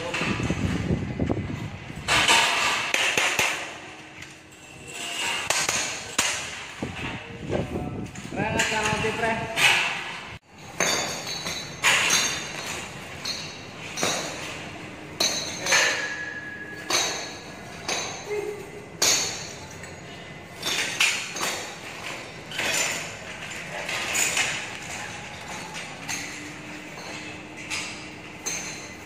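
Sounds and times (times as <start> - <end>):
metal scaffold parts clanking: 0.0 - 29.0.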